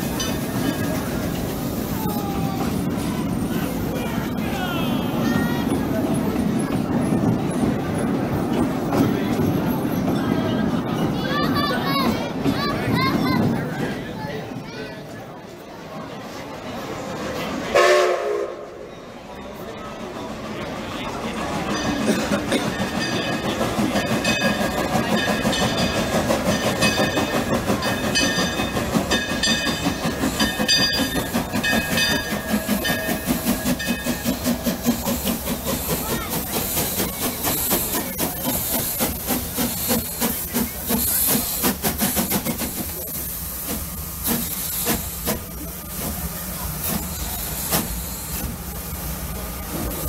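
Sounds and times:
steam hissing: 0.0s - 8.8s, 21.1s - 50.0s.

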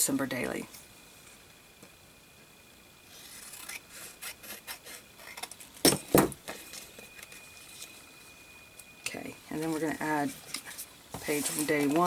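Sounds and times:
paper rustling: 9.7s - 12.0s.

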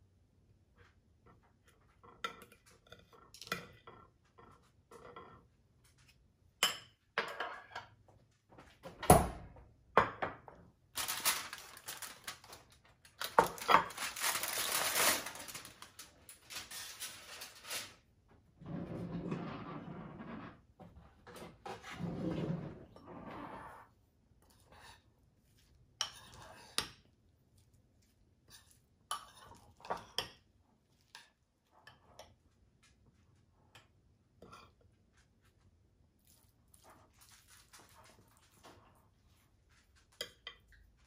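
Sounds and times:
cling wrap crinkling: 10.9s - 18.0s
fork scraping on ceramic plate: 26.0s - 27.0s.

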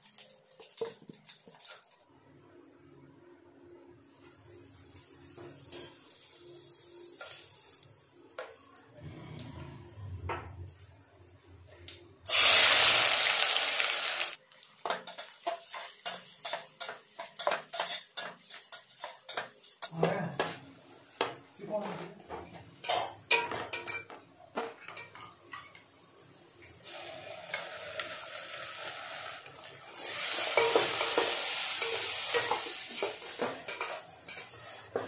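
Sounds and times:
onion sizzling in oil: 4.2s - 7.9s, 12.3s - 19.9s, 26.8s - 35.0s
seeds crackling in hot oil: 12.3s - 19.7s, 26.8s - 34.9s.

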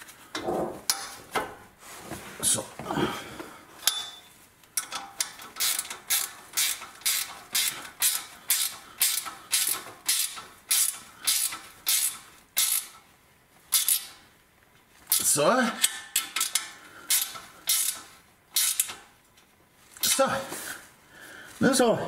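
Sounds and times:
ratchet wrench clicking: 4.8s - 13.0s, 13.7s - 14.2s, 15.1s - 19.0s.

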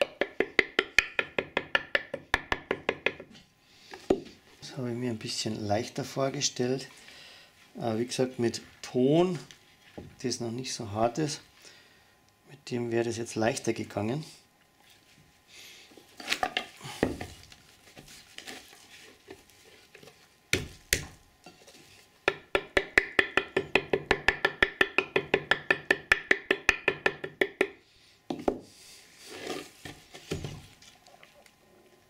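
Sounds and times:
small hammer tapping plaster: 0.0s - 3.4s, 20.5s - 21.2s, 22.2s - 28.6s.

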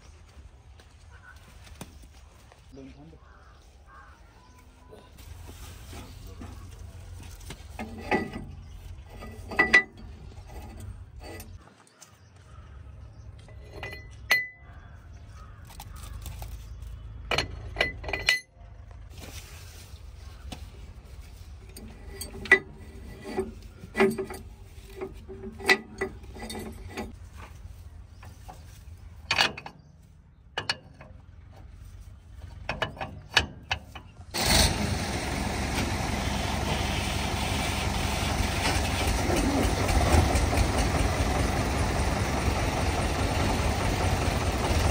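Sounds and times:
sharp clinks and knocks: 7.4s - 11.6s, 13.4s - 14.7s, 17.2s - 18.6s, 21.7s - 27.2s
loud steady engine: 31.3s - 44.9s.

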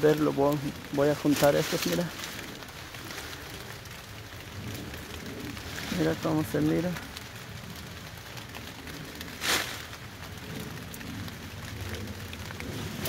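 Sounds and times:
rain falling on foliage: 0.0s - 13.0s
rustling swish: 9.3s - 10.0s.

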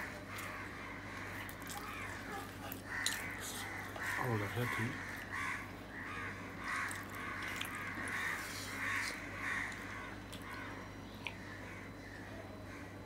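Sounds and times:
crows cawing: 0.0s - 13.0s
steady low hum: 0.0s - 13.0s.

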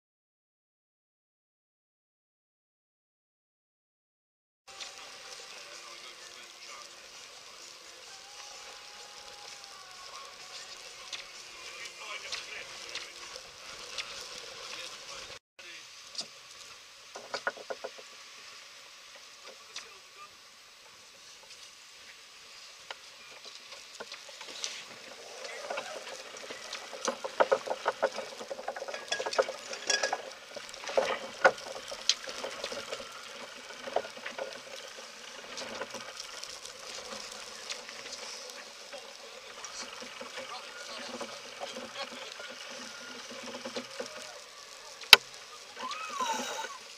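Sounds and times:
muffled voices: 4.7s - 16.0s, 19.4s - 20.5s, 24.4s - 46.9s.

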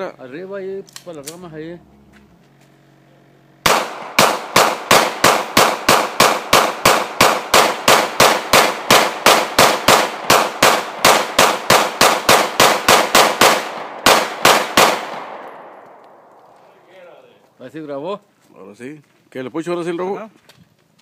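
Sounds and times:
pistol shots: 3.6s - 16.3s.

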